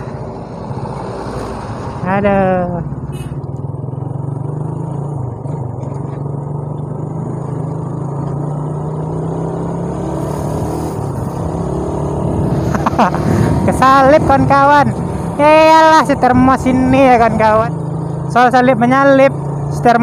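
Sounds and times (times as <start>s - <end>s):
rushing wind: 0.0s - 4.4s, 8.5s - 18.3s
road noise: 0.0s - 20.0s
motorcycle engine running: 2.5s - 20.0s.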